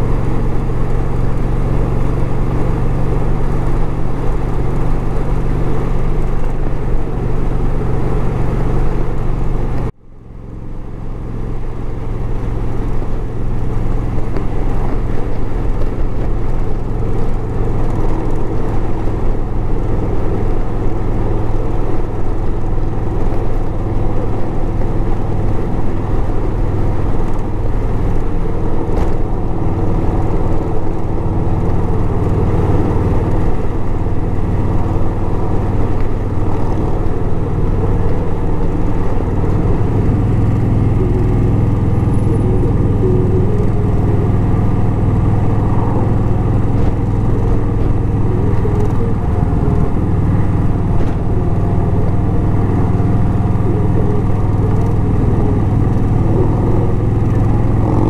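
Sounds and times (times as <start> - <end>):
motorcycle engine drone: 0.0 - 58.0
wind rush: 32.8 - 58.0.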